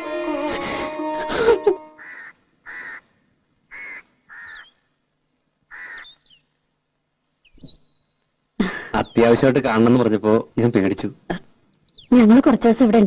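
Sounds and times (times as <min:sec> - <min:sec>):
sitar music: 0:00.0 - 0:02.1
crow cawing: 0:02.0 - 0:03.1, 0:03.7 - 0:04.8, 0:05.7 - 0:06.2
high bird chirps: 0:03.7 - 0:04.9, 0:05.8 - 0:06.5, 0:07.4 - 0:08.2, 0:11.8 - 0:12.2.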